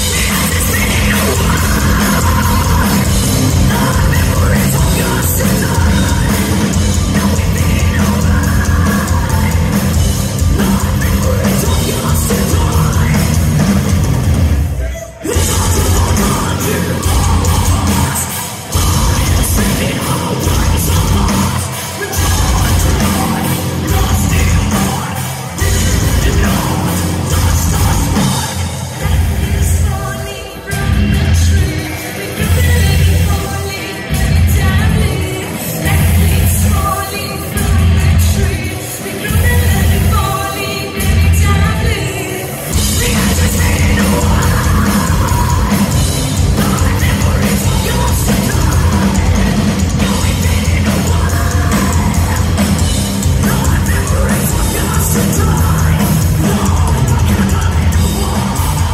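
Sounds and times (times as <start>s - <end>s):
bass: 0.0s - 58.9s
distorted guitars: 0.0s - 58.9s
drums: 0.0s - 58.9s
metal band playing: 0.0s - 58.9s
woman singing: 15.2s - 58.9s.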